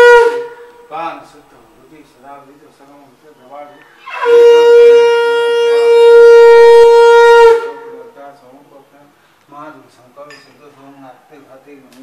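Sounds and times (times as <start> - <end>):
conch shell blast: 0.0 - 0.9, 4.0 - 8.2.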